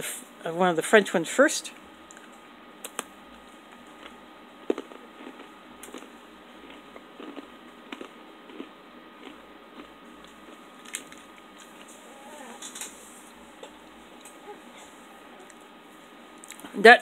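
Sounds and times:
biscuit cracking and crunching: 0:02.1 - 0:11.9.

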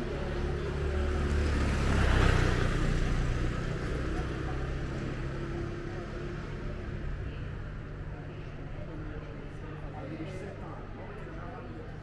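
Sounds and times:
motor scooter passing: 0:00.0 - 0:06.5.

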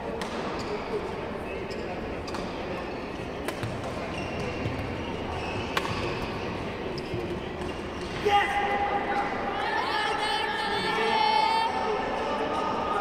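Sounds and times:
murmur in hall: 0:00.0 - 0:13.0
racket hitting shuttlecock: 0:03.4 - 0:04.9, 0:05.6 - 0:06.3.

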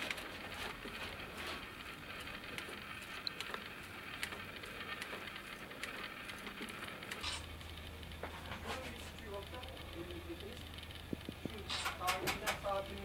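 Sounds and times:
wicker baskets crackling and creaking: 0:00.0 - 0:13.0
small clicks: 0:02.1 - 0:08.2.

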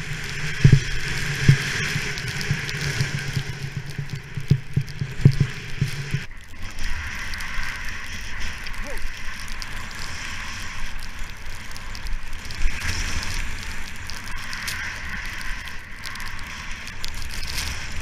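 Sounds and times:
skis hissing over snow: 0:00.0 - 0:18.0
snow crackling: 0:00.0 - 0:18.0
wind rumbling on microphone: 0:00.0 - 0:18.0.

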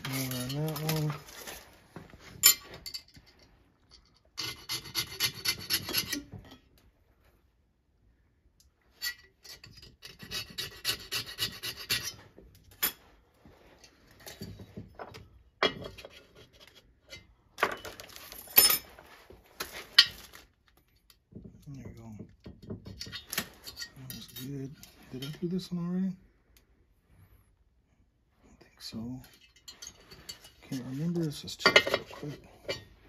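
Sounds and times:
file rasping on metal: 0:04.4 - 0:06.3, 0:10.0 - 0:12.2.

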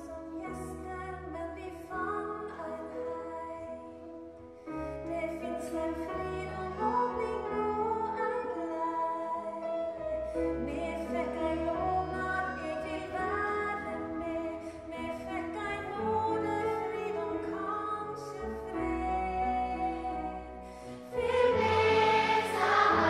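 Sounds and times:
woman singing: 0:00.0 - 0:04.1, 0:05.0 - 0:09.9, 0:10.6 - 0:21.6
accordion: 0:21.1 - 0:23.0.

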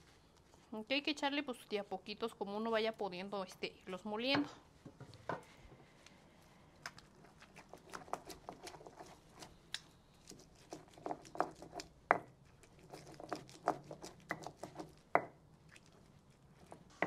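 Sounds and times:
stone pestle grinding in mortar: 0:07.3 - 0:09.5, 0:10.2 - 0:15.4.

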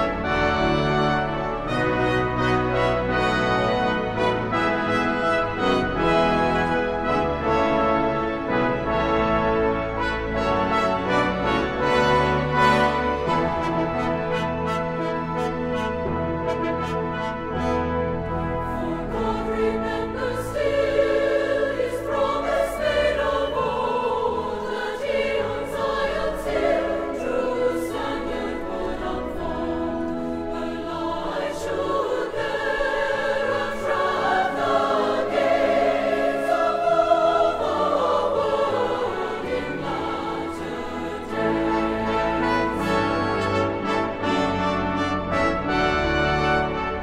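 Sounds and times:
orchestral accompaniment: 0:00.0 - 0:47.0
choir singing held notes: 0:17.5 - 0:47.0.

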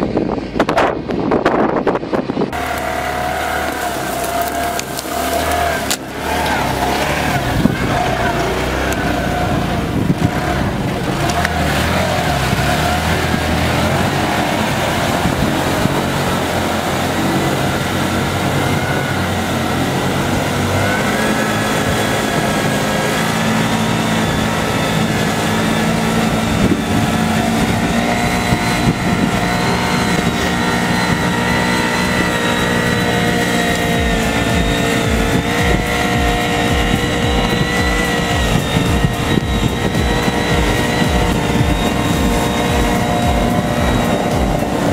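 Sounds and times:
off-road buggy engine running: 0:00.0 - 0:44.9.

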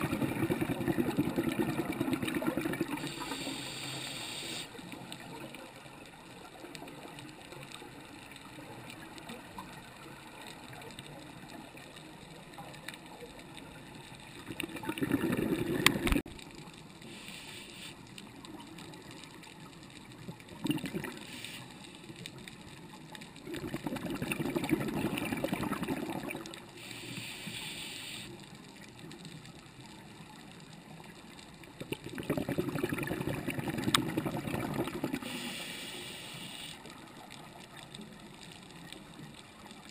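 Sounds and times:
regulator exhaled bubbles rushing: 0:00.0 - 0:03.2, 0:14.5 - 0:16.2, 0:23.5 - 0:26.4, 0:32.0 - 0:35.5
regulator inhale hiss: 0:03.0 - 0:04.8, 0:17.0 - 0:18.0, 0:21.2 - 0:21.9, 0:26.8 - 0:28.4, 0:35.2 - 0:36.9.

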